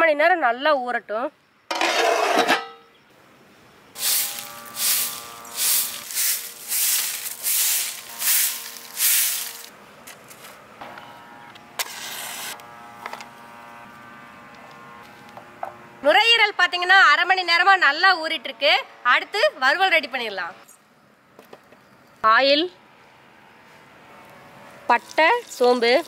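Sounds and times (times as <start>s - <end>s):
metal plate clattering on bowl: 1.7s - 2.8s
broom sweeping dirt ground: 4.0s - 10.6s, 11.8s - 12.6s.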